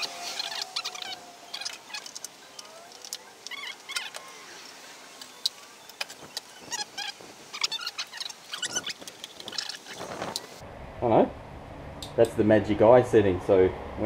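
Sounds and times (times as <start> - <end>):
light clicks and handling: 0.5 - 4.4.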